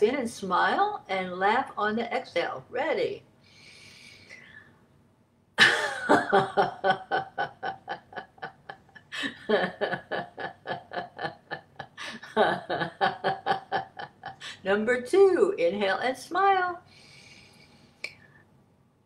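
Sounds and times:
woman laughing: 5.6s - 14.6s.

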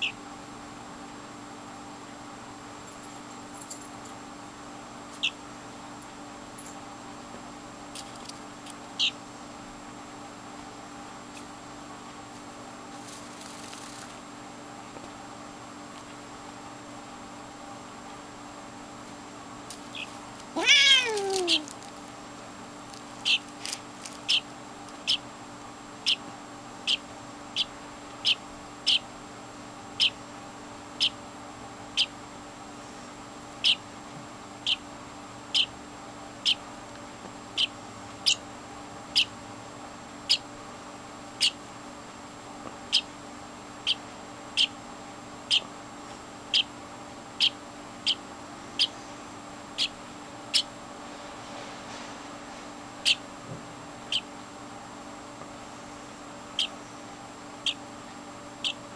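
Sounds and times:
bird chick chirping: 5.2s - 5.4s, 9.0s - 9.2s, 19.9s - 20.1s, 20.7s - 21.7s, 23.2s - 23.5s, 24.2s - 25.2s, 26.0s - 26.2s, 26.8s - 27.0s, 27.6s - 29.0s, 30.0s - 30.2s, 33.6s - 33.8s, 35.5s - 35.7s, 37.6s - 38.4s, 39.1s - 39.3s, 41.4s - 41.6s, 44.6s - 44.8s, 45.5s - 45.7s, 46.5s - 46.7s, 47.4s - 48.2s, 49.8s - 50.7s, 53.0s - 53.2s, 54.1s - 54.3s, 56.6s - 56.8s, 58.6s - 58.8s
cat meowing: 20.6s - 21.7s.

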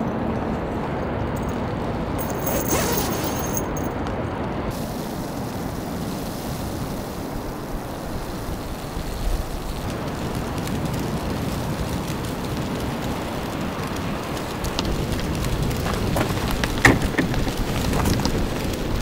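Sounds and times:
steady rain hiss: 0.0s - 19.0s.

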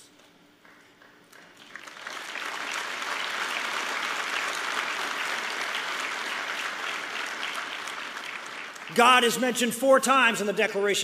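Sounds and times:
audience applauding: 0.6s - 9.6s.

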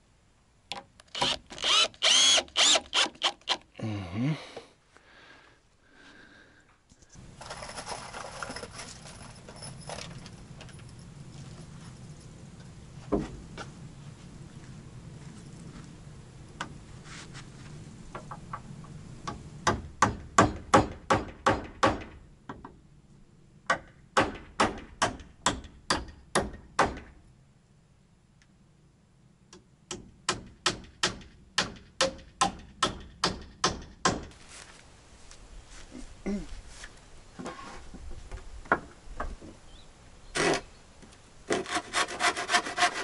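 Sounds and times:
hammer driving nails into timber: 19.3s - 22.6s.

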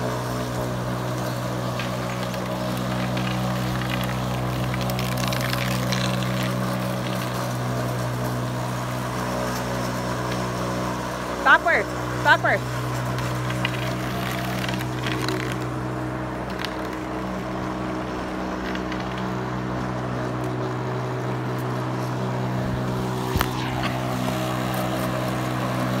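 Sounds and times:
lawn mower engine running: 0.0s - 26.0s.

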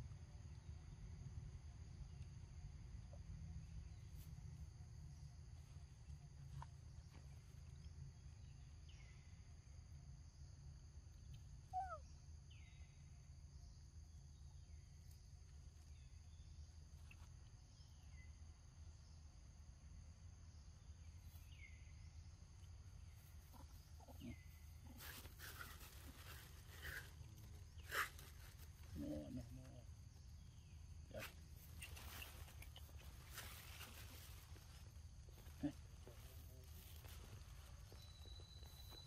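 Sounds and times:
faint chirps: 11.0s - 19.3s, 20.5s - 39.0s
high insect drone: 12.0s - 39.0s
monkeys rustling and scuffling: 23.2s - 29.2s, 31.2s - 39.0s.

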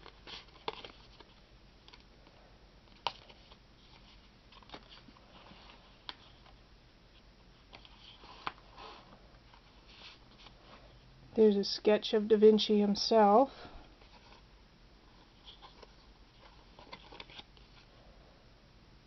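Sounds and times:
paper rustling: 0.0s - 2.0s, 2.9s - 6.6s, 7.6s - 10.8s, 15.1s - 17.9s.

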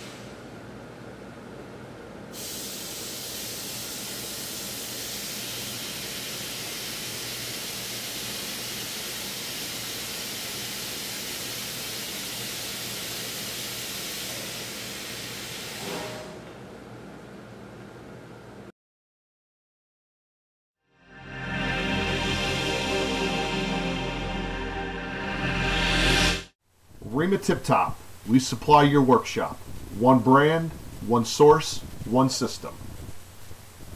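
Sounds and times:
compressed air hissing: 2.3s - 15.9s.

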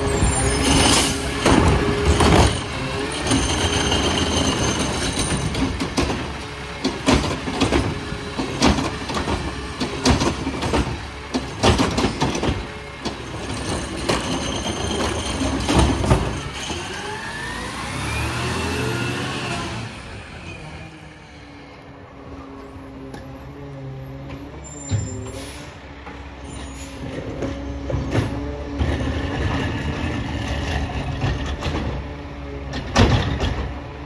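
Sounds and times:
garbage truck engine running: 0.0s - 18.5s
truck engine revving: 16.2s - 21.0s.

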